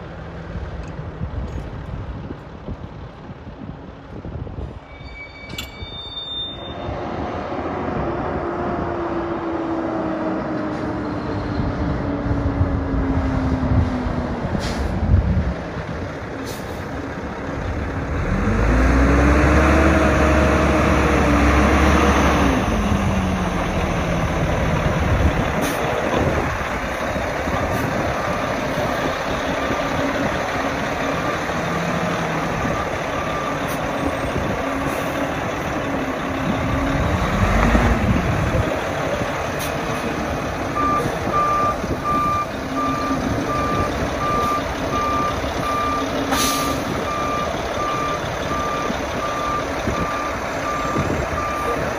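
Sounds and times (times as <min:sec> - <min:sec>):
diesel engine revving: 0:06.8 - 0:51.9
reversing alarm beeping: 0:32.6 - 0:34.3, 0:40.7 - 0:51.8.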